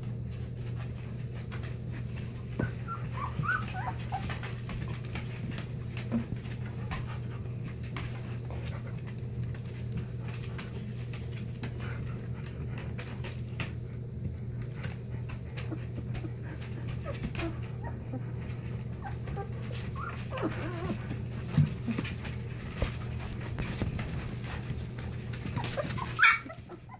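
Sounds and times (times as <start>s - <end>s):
steady low hum: 0.0s - 26.9s
puppies panting: 0.6s - 26.9s
puppies whimpering: 2.6s - 4.8s, 15.6s - 21.9s, 25.3s - 26.9s.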